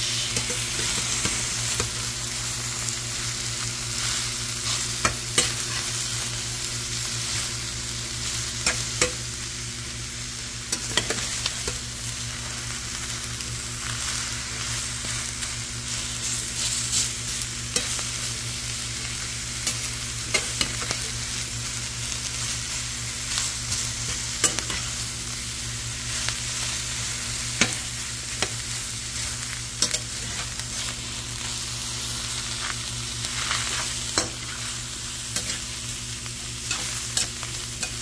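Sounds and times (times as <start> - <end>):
vegetables sizzling in a pan: 0.0 - 38.0
metal spatula scraping a pan: 36.7 - 38.0.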